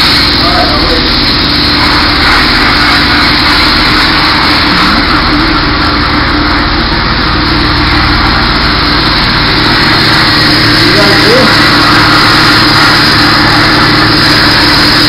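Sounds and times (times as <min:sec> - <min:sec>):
exhaust fan hum: 0:00.0 - 0:15.0
sandblasting air hiss: 0:00.0 - 0:15.0.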